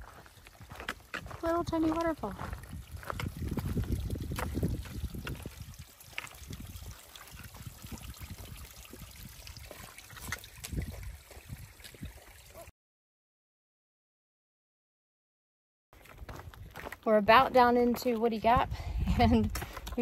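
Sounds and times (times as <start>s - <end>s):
footsteps and poles on stone: 0.0s - 8.0s, 9.6s - 12.2s, 16.0s - 20.0s
stream trickling over rocks: 0.0s - 12.7s.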